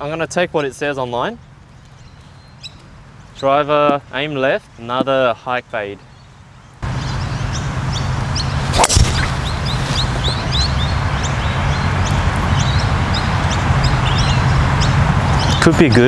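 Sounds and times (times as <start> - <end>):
birds chirping: 0.0 - 16.0
golf driver striking ball: 8.7 - 9.5.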